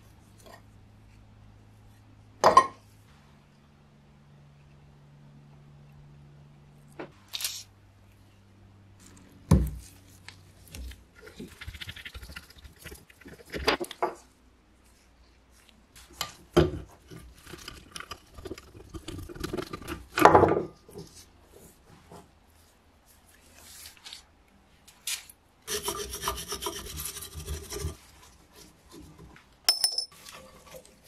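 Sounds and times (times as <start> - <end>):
metal scraping and rubbing: 11.2 - 14.0, 16.8 - 20.2, 25.7 - 29.2.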